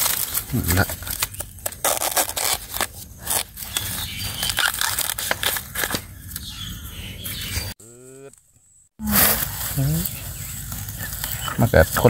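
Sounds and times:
dry bamboo leaves crunching: 0.0s - 6.6s, 9.0s - 12.0s.

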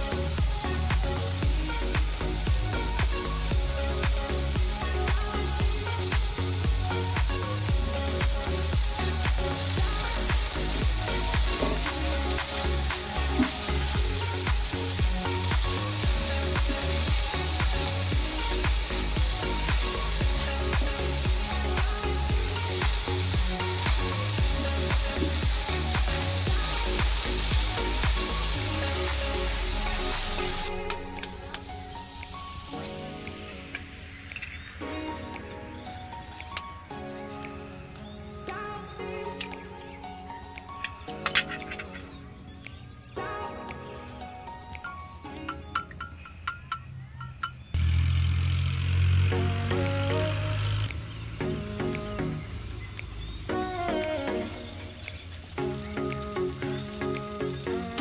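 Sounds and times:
vegetables sizzling in frying pan: 0.0s - 30.7s.

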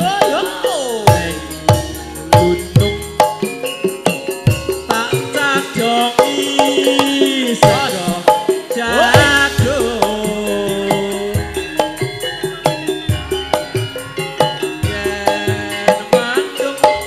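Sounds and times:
drum beats: 0.0s - 17.0s
gamelan bronze keys ringing: 0.0s - 17.0s
wavering sliding melody: 0.0s - 17.0s.

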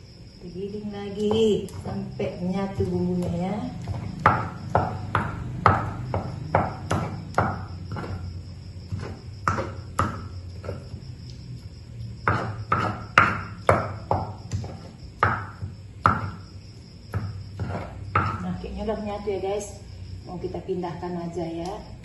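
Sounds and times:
pestle knocking in stone mortar: 1.2s - 11.2s, 12.2s - 18.4s.

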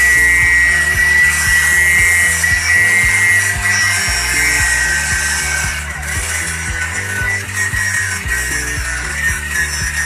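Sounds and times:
angle grinder cutting metal: 0.0s - 10.0s
music with steady beat: 0.0s - 10.0s.

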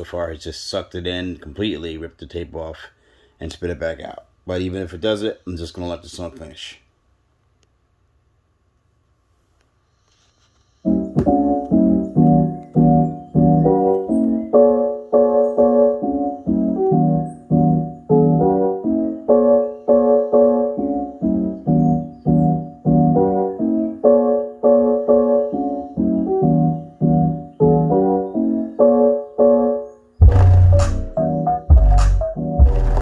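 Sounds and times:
keyboard riff over speakers: 10.9s - 33.0s.

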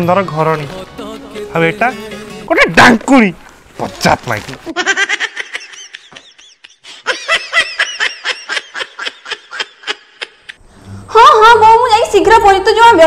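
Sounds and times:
man laughing: 4.7s - 10.6s.

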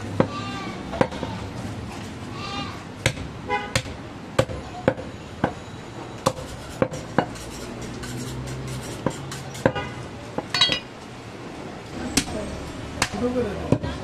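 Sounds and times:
metallic clatter with ring: 10.5s - 11.0s.

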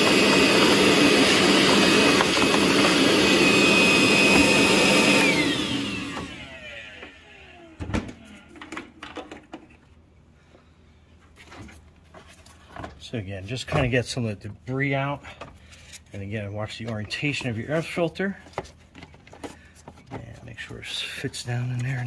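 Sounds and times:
motor winding down whine: 0.0s - 7.9s
shop vacuum running: 0.0s - 9.4s.

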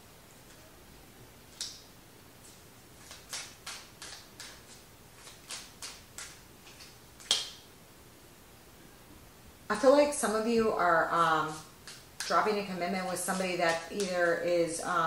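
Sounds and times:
cards tapping and flicking: 3.0s - 7.6s, 13.3s - 14.3s.

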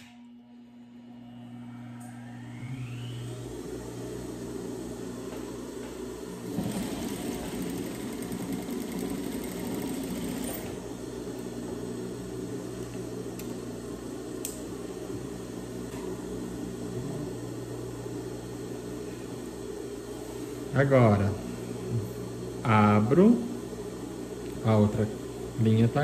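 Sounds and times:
low hum: 0.0s - 5.1s
sewing machine stitching: 6.4s - 10.8s.

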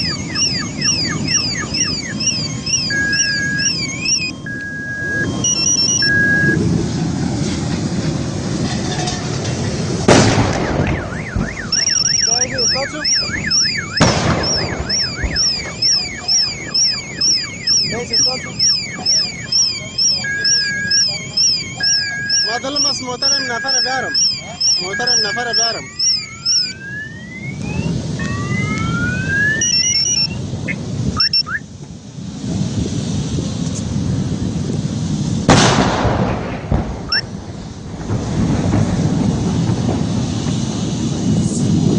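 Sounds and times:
car alarms wailing and beeping: 0.0s - 6.6s, 10.5s - 31.7s, 37.0s - 37.3s
steady low rumble: 0.0s - 41.9s
vehicle exploding: 5.2s - 26.2s, 32.3s - 41.9s.

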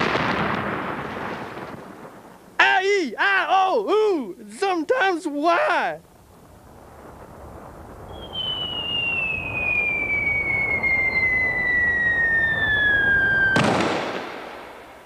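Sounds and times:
rumbling noise: 6.0s - 14.8s
cartoon falling whistle: 8.1s - 13.7s.

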